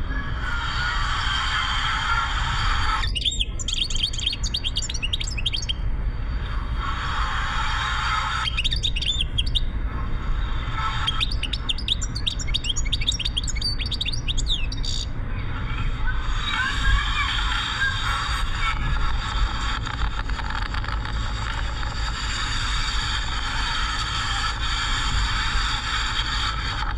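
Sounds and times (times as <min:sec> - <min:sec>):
car rumbling on road: 0:00.0 - 0:26.9
bird twittering: 0:03.0 - 0:05.8, 0:08.4 - 0:09.7, 0:10.9 - 0:15.1.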